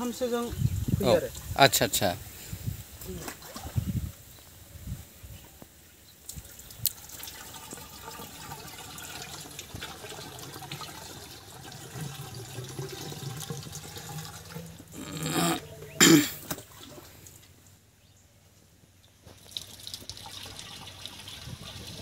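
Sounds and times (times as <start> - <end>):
water splashes: 3.0 - 4.1, 19.3 - 22.0
water pouring into pipe: 6.3 - 15.6, 19.4 - 22.0.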